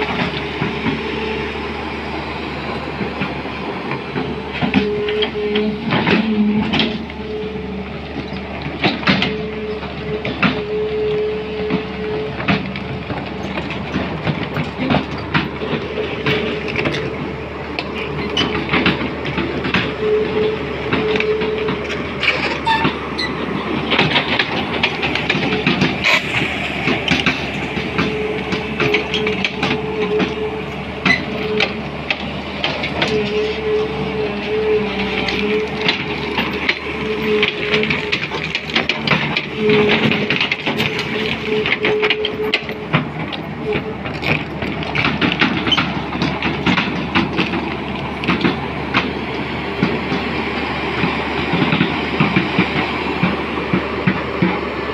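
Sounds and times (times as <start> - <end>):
engine whine: 0.0 - 54.9
excavator diesel engine running: 0.0 - 54.9
steel bucket scraping gravel: 14.7 - 32.0, 32.8 - 42.9.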